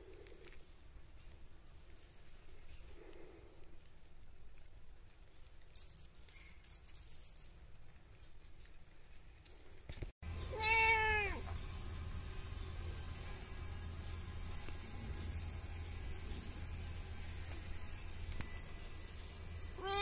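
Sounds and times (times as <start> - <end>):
faint high jingling: 5.8 - 7.6
cat meowing: 10.5 - 11.4, 19.8 - 20.0.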